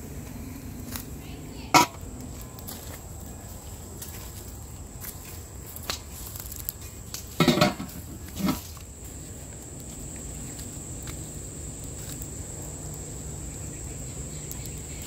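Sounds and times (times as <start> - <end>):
insects droning: 0.0 - 15.0
metal pots clattering: 1.7 - 2.0, 7.4 - 8.7.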